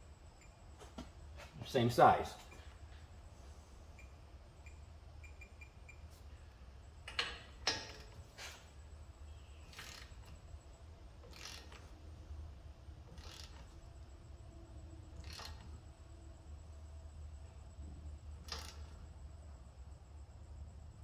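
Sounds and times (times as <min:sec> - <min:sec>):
torque wrench ratchet clicking: 0:09.7 - 0:10.4, 0:11.2 - 0:12.0, 0:13.1 - 0:13.8, 0:15.2 - 0:15.8, 0:18.4 - 0:19.0.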